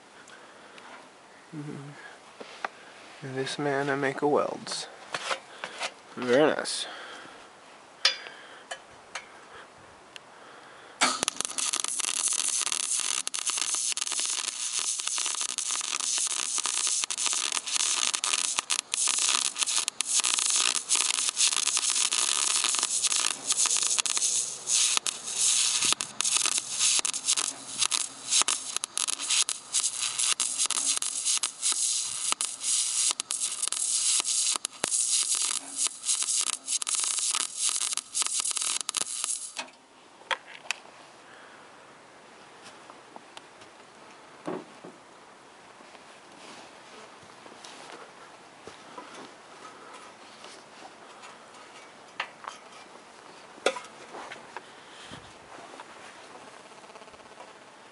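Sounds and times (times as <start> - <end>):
welding arc crackling: 11.0 - 39.7, 56.5 - 57.9.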